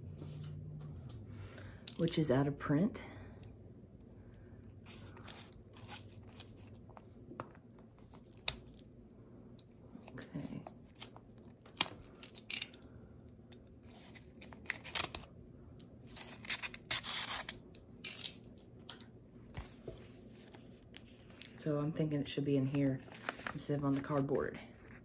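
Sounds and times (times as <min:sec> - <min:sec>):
plastic and paper crinkling: 0:22.6 - 0:25.0.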